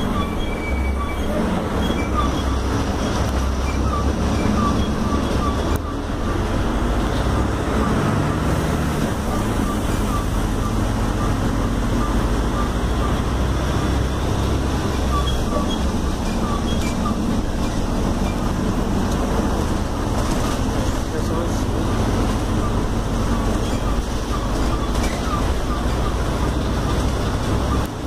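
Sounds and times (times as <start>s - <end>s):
bus engine drone: 0.0s - 28.0s
road noise: 0.0s - 28.0s.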